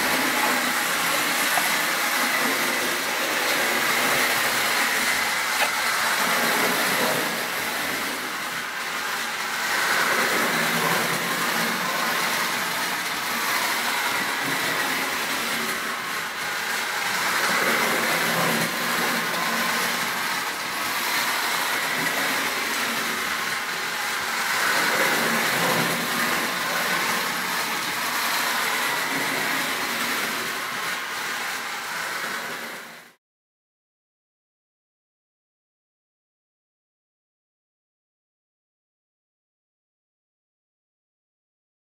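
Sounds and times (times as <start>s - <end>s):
wheels rattling over rails: 0.0s - 33.1s
toy train motor whirring: 0.0s - 33.2s.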